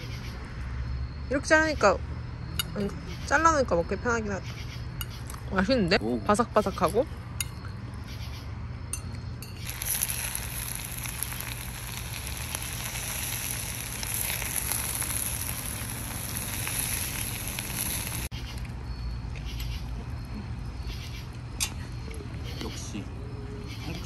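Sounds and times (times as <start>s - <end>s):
food sizzling: 9.6s - 18.3s.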